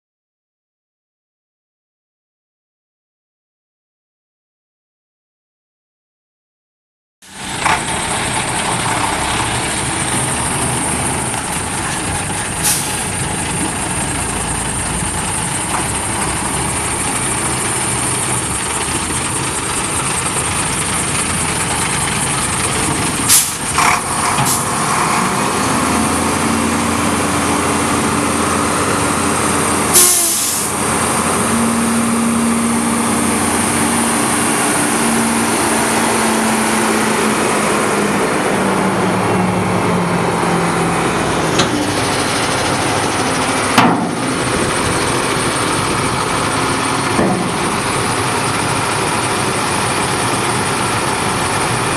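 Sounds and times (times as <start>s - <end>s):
diesel truck engine running: 7.2s - 51.9s
air brake hisses: 12.6s - 13.1s, 23.3s - 23.7s, 30.0s - 30.8s.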